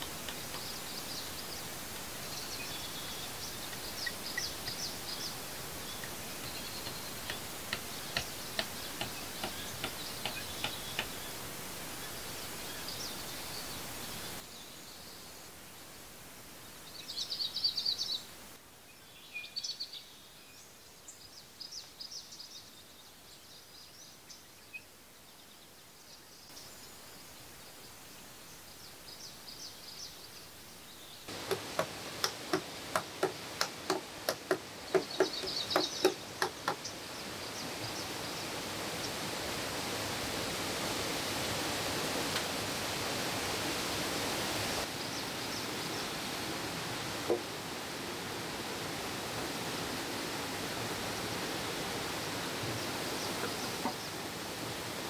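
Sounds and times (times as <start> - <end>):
birds chirping: 0.0 - 15.9, 19.0 - 39.2, 52.8 - 54.3
hammer striking bamboo poles: 6.8 - 11.2, 31.3 - 36.8.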